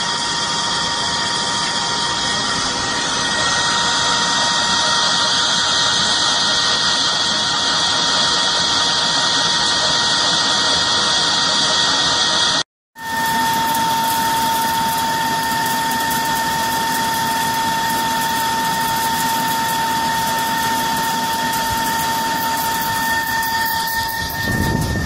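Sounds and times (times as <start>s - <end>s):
lathe whine and hum: 0.0s - 25.0s.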